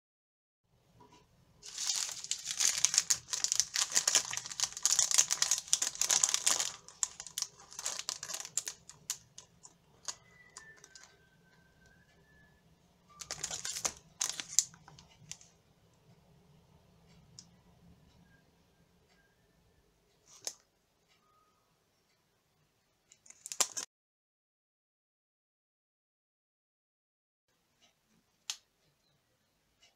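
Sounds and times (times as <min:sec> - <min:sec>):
plastic wrappers crinkling: 0:01.6 - 0:11.2, 0:13.1 - 0:15.4, 0:23.2 - 0:23.8.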